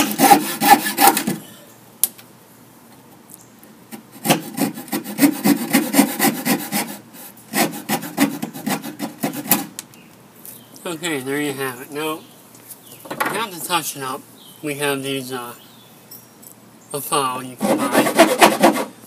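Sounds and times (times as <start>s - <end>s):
saw rasping through wood: 0.0s - 1.4s, 4.2s - 9.7s, 17.6s - 19.0s.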